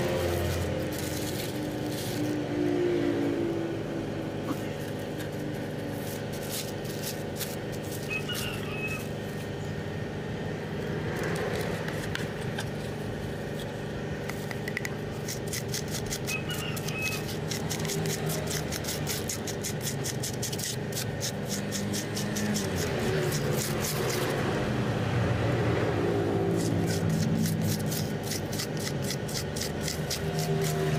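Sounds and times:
motor-like drone: 0:00.0 - 0:30.9
spatula scraping paste on plastic: 0:15.3 - 0:24.4, 0:26.5 - 0:30.9.

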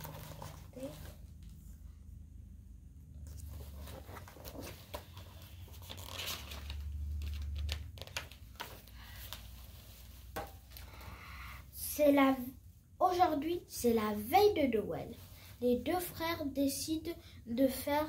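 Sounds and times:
paper pages rustling: 0:00.0 - 0:01.6, 0:03.2 - 0:11.0.

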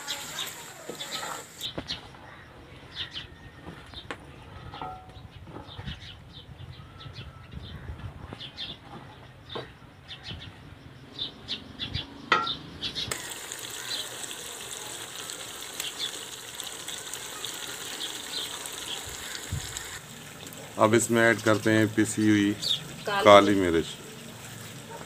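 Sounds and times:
food sizzling in pot: 0:00.0 - 0:01.8, 0:13.1 - 0:25.0
birds chirping: 0:00.0 - 0:25.0.

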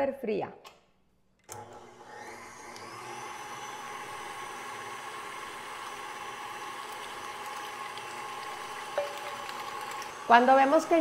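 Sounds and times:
electric mixer motor whining: 0:01.5 - 0:11.0
beaters whipping cream: 0:02.2 - 0:11.0.

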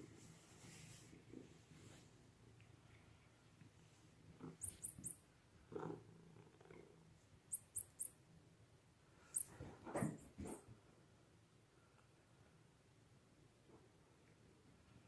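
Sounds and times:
metallic jingling clicks: 0:04.6 - 0:05.2.

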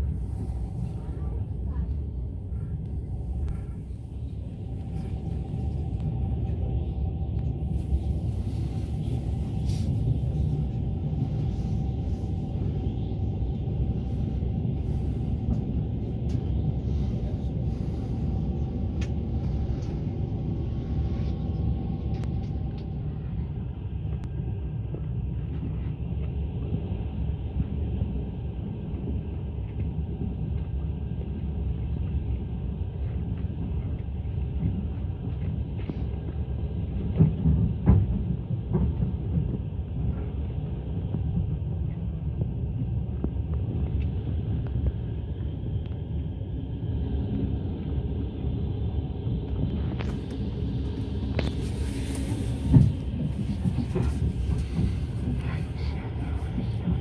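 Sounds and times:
train rumble: 0:00.0 - 0:57.0.

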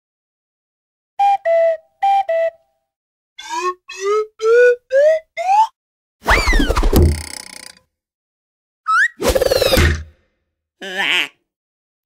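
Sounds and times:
cartoon two-note calls: 0:03.4 - 0:05.7.

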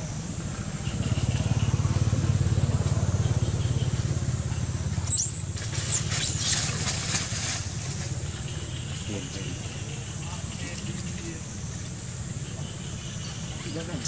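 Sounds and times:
monkey shrill squeal: 0:05.1 - 0:06.7
dry leaves crackling: 0:05.1 - 0:12.5.

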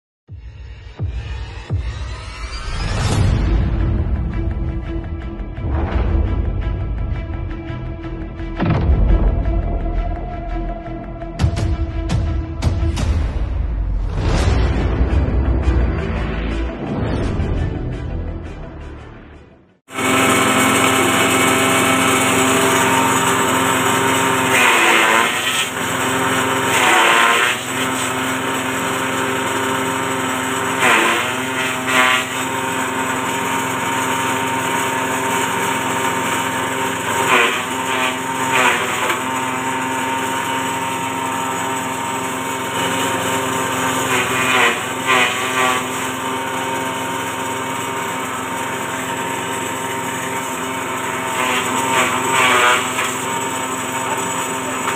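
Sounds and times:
grass chopping rush: 0:19.9 - 0:54.9
small petrol engine running: 0:19.9 - 0:54.9.

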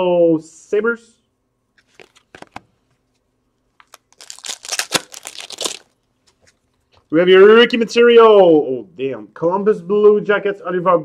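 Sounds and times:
cards crinkling and rustling: 0:01.8 - 0:03.2, 0:03.8 - 0:07.1.

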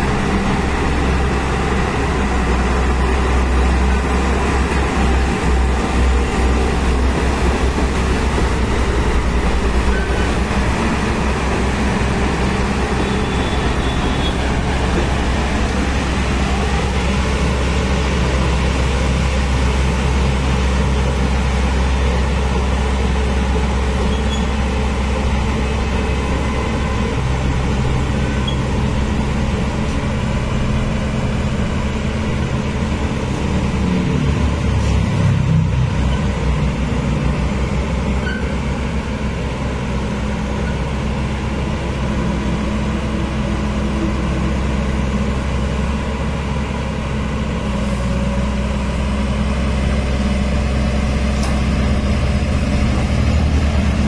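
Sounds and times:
excavator diesel engine running: 0:00.0 - 0:54.0.

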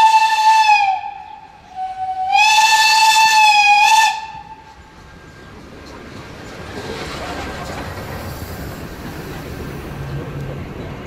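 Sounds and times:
steam locomotive whistle: 0:00.0 - 0:04.7.

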